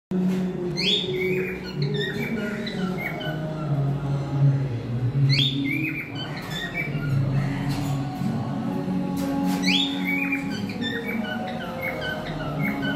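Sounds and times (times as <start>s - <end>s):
cockatiel whistling and chirping: 0.8s - 3.4s, 9.6s - 12.9s.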